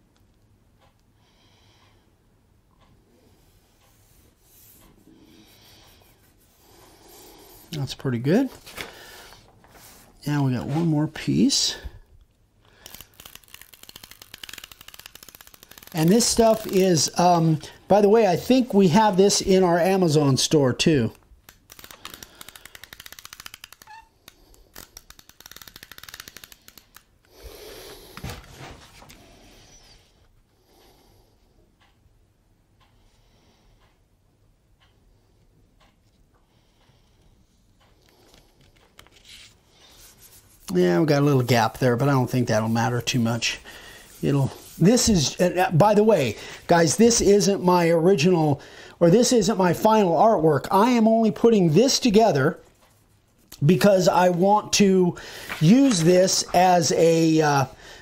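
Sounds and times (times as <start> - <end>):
paper sheets rustling: 8.3 - 11.1, 12.8 - 17.1, 28.2 - 29.2.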